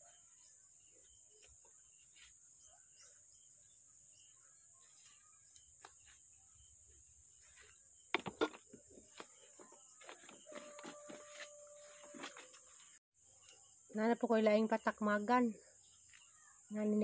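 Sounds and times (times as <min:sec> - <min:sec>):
faint bird chirps: 0:00.0 - 0:17.0
sharp rustling or knocking: 0:08.1 - 0:09.3.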